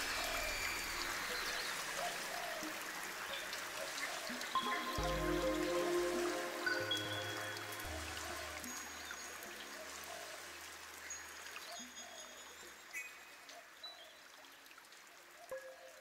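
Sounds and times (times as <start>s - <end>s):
soft ambient music: 0.0s - 12.7s, 15.5s - 16.0s
trickling water-like hiss: 0.0s - 15.9s
low drone: 4.6s - 9.9s.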